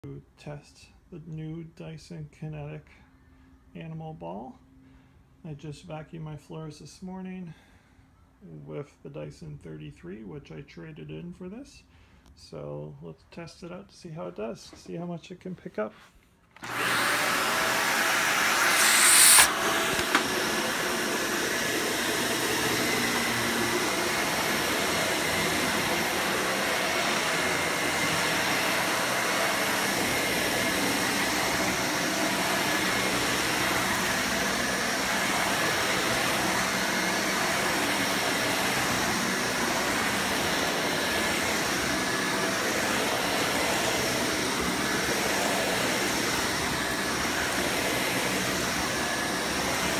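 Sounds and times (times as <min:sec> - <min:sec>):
vacuum cleaner motor running: 0:16.6 - 0:49.9
sharp hiss: 0:18.5 - 0:19.6.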